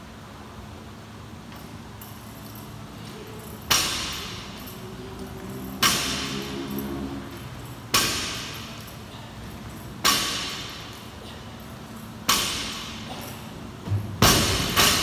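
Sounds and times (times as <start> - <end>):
bar and plates ringing and rattling: 5.6 - 15.0
barbell dropping on rubber floor: 5.8 - 6.5, 7.9 - 8.9, 10.0 - 11.0, 12.2 - 15.0.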